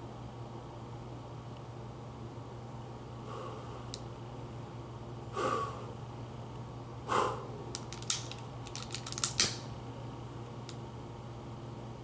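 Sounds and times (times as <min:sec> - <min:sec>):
puffs of breath blown: 0:03.2 - 0:03.9, 0:05.3 - 0:06.0, 0:07.1 - 0:07.6.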